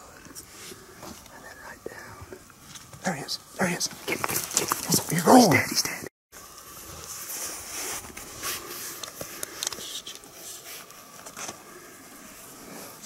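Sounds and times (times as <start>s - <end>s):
steady hiss: 0.0s - 13.0s
soft rustling and scraping: 6.4s - 13.0s.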